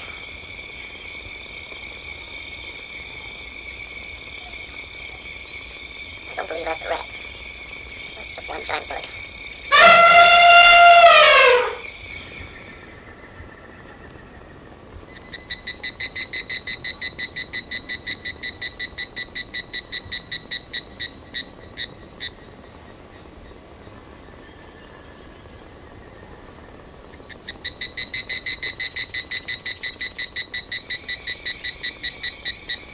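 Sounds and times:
loud animal call dropping in pitch: 9.7s - 11.8s.

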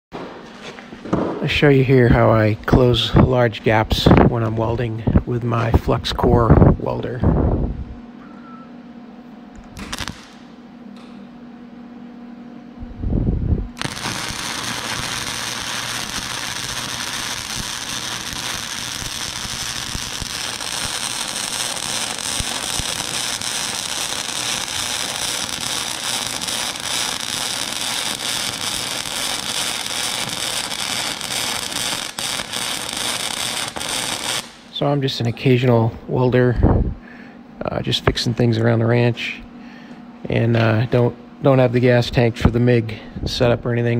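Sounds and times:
welding arc crackling and sizzling: 9.5s - 11.2s, 13.7s - 35.6s.

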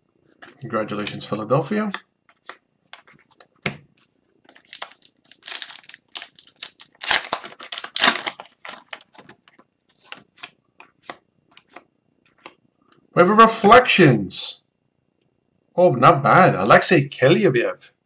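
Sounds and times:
foil wrapper tearing and crinkling: 4.5s - 10.5s.

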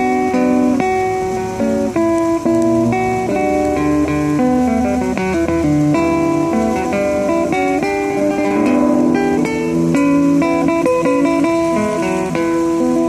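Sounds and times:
classical guitar fingerstyle: 0.0s - 13.0s.

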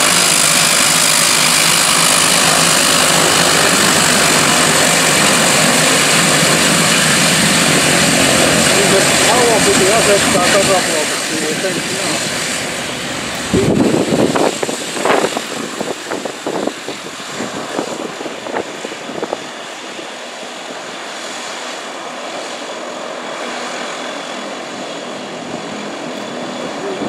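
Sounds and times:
gusty bursts: 0.0s - 19.6s
turboprop engines whining: 0.0s - 27.0s.

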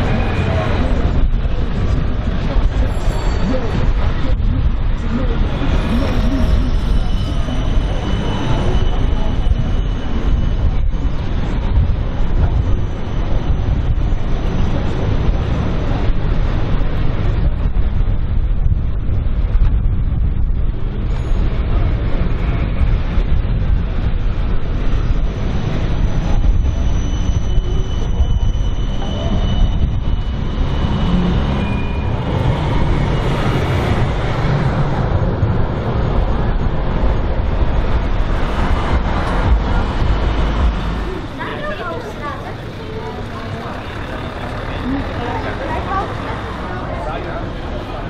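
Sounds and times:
tram rolling on track: 0.0s - 48.0s
faint high whine: 5.0s - 15.4s, 23.2s - 34.5s.

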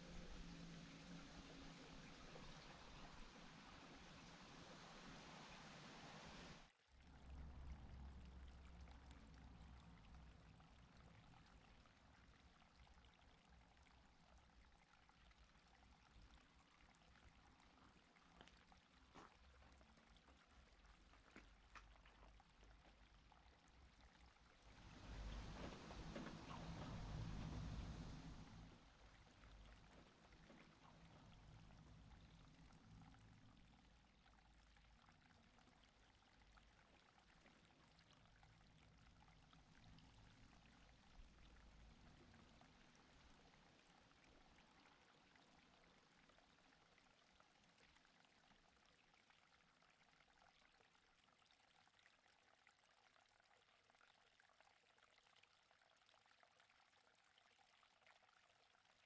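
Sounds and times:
faint outdoor hiss: 0.0s - 50.4s
low rumble: 24.7s - 33.2s.

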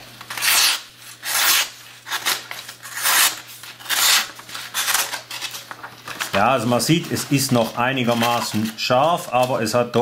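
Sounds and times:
knife slicing paper: 0.3s - 5.6s.

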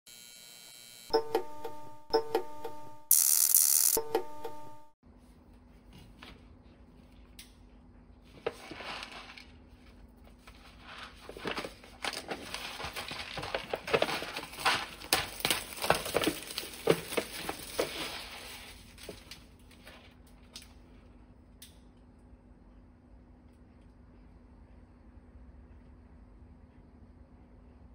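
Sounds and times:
noodle bowl packaging crinkling: 8.4s - 20.6s.

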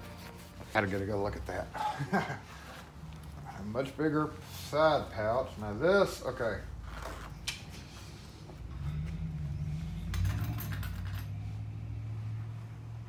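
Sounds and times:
leather scuffing and rustling: 0.0s - 1.3s.

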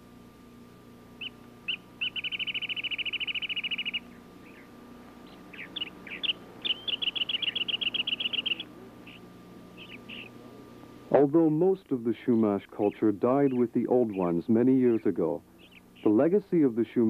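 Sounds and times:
songbird trilling: 1.2s - 10.5s, 12.2s - 16.2s.

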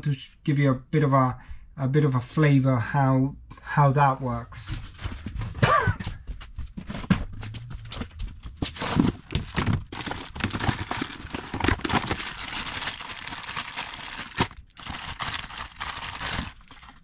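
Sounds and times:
plastic bag crinkling: 8.7s - 17.0s.

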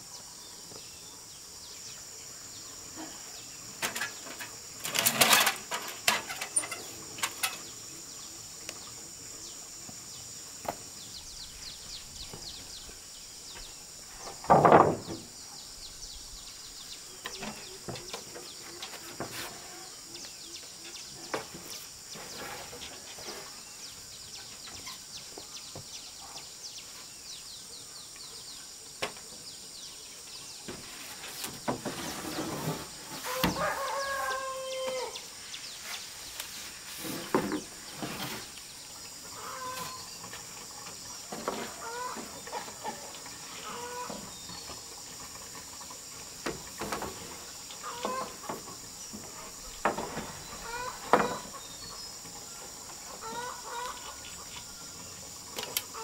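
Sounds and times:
steady high hiss: 0.0s - 56.0s
wooden boards knocking: 14.2s - 15.3s
rooster-like call: 33.2s - 35.3s, 50.6s - 51.4s
chickens clucking: 41.3s - 44.3s, 47.8s - 54.8s.

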